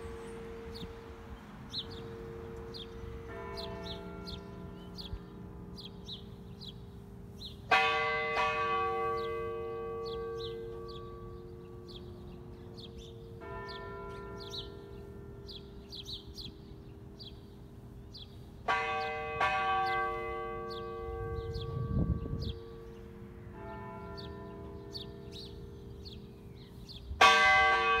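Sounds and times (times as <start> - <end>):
small birds chirping: 1.7 - 7.7, 10.0 - 19.2, 24.1 - 27.2
church bell tolling: 1.8 - 17.2, 18.6 - 26.5, 27.2 - 28.0.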